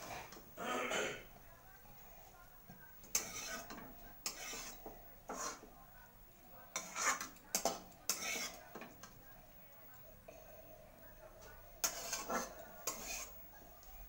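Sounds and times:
metal spoon scraping a metal pan: 0:03.0 - 0:05.7, 0:06.7 - 0:08.6, 0:11.8 - 0:13.4.

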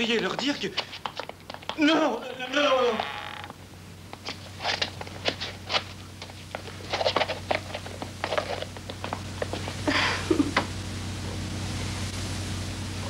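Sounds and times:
footsteps going up stairs: 0:00.0 - 0:03.5, 0:04.1 - 0:10.8
steady low hum: 0:00.0 - 0:13.0
rustling: 0:04.1 - 0:09.9.

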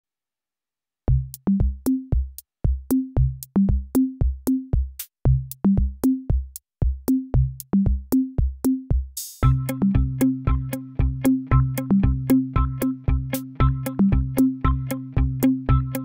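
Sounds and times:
drum-machine beat: 0:01.1 - 0:16.0
short bass notes: 0:09.4 - 0:16.0.

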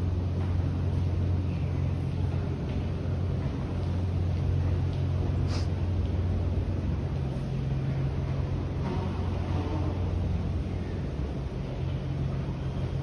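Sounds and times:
station drone: 0:00.0 - 0:13.0
light hiss: 0:05.4 - 0:05.9.

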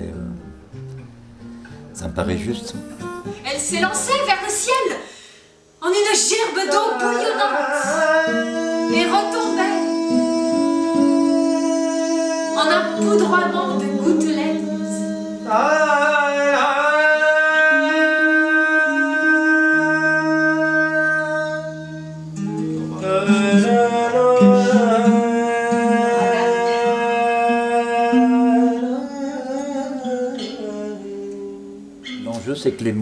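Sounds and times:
nylon-string guitar plucked: 0:00.0 - 0:05.0, 0:06.0 - 0:16.1, 0:19.7 - 0:32.6
person singing long notes: 0:06.5 - 0:32.3.

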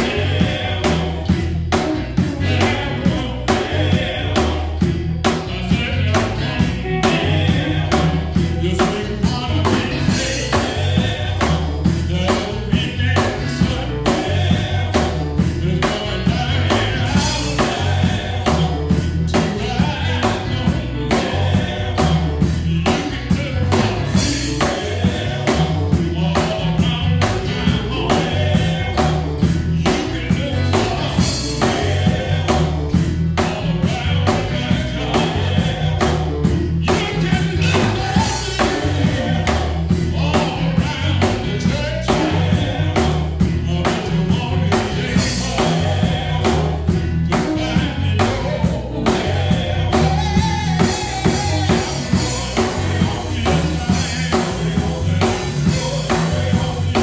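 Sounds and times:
drum kit beat: 0:00.0 - 0:57.0
male vocal group singing in harmony: 0:00.0 - 0:57.0.

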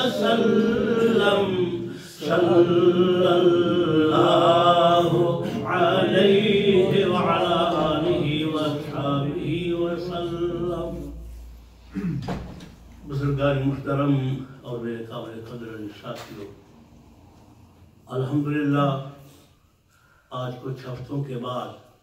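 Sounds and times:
unaccompanied devotional chanting: 0:00.0 - 0:16.5.

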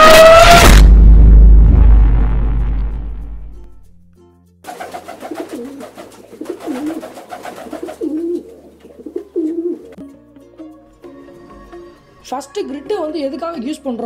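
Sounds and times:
deep rumble: 0:00.6 - 0:03.7
music: 0:02.4 - 0:14.0
pigeon cooing: 0:04.7 - 0:10.0.

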